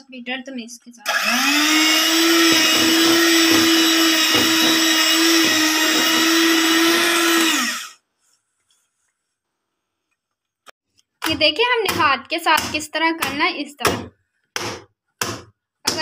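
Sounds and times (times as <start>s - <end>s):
electric hand mixer running: 1.0s - 8.0s.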